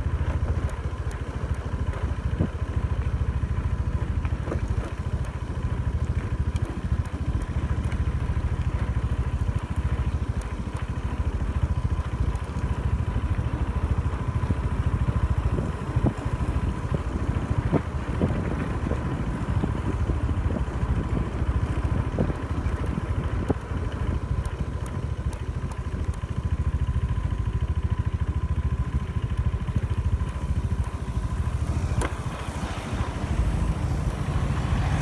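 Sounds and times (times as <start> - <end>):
scooter engine running: 0.0 - 35.0
wind buffeting microphone: 14.4 - 26.1.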